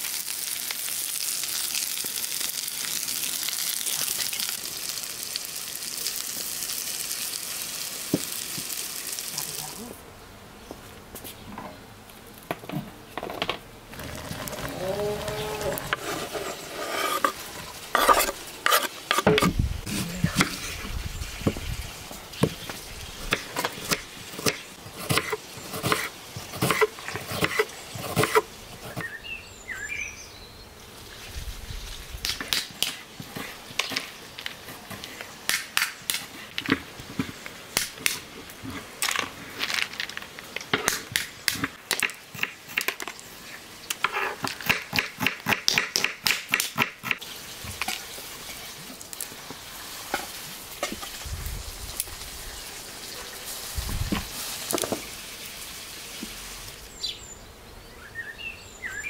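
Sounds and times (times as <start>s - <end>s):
bird chirping: 28.8s - 30.8s, 56.9s - 59.0s.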